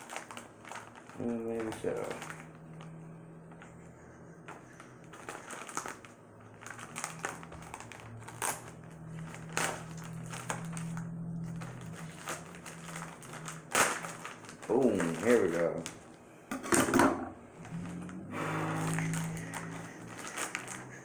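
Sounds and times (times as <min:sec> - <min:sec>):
knife slitting plastic envelope: 0:00.0 - 0:02.5, 0:05.1 - 0:16.0, 0:18.9 - 0:21.0
plastic crinkling and rustling: 0:00.0 - 0:16.2, 0:17.6 - 0:21.0.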